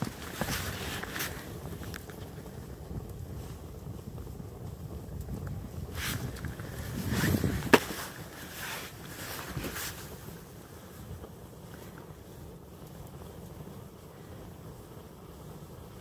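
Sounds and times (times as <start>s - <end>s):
fire rumbling: 0.0s - 16.0s
sharp pop: 7.6s - 8.1s.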